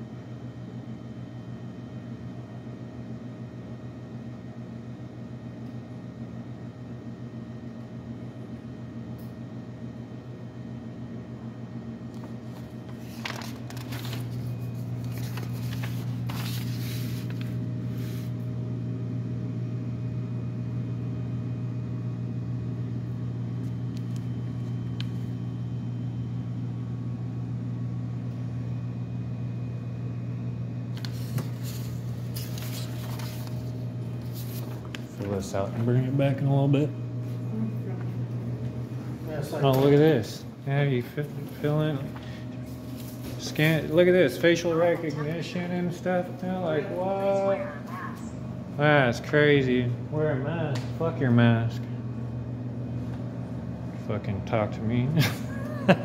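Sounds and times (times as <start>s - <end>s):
low machine hum: 0.0s - 56.0s
paper rustling: 12.5s - 18.3s, 31.0s - 35.4s.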